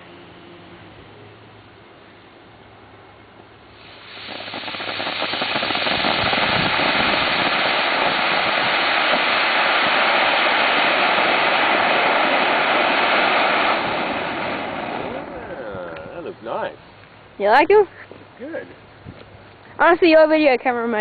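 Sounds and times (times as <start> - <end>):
rushing hiss of sparks: 3.8 - 16.0.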